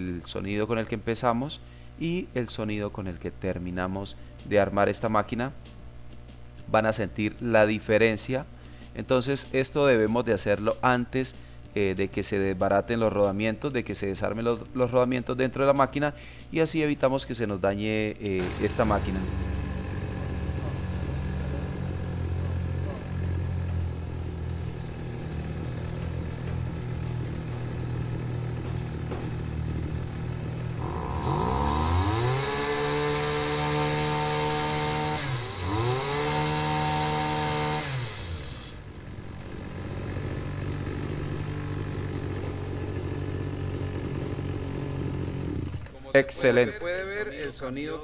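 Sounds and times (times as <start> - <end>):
small petrol engine revving: 18.4 - 46.0.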